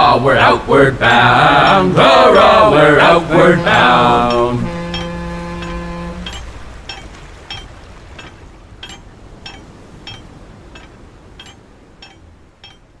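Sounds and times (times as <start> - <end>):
capstan pawls clinking: 1.5 - 13.0
sung chord: 1.6 - 7.6.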